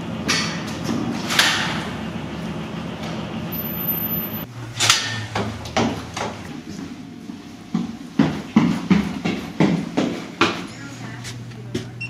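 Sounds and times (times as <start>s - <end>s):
footsteps on stairs: 5.3s - 12.0s.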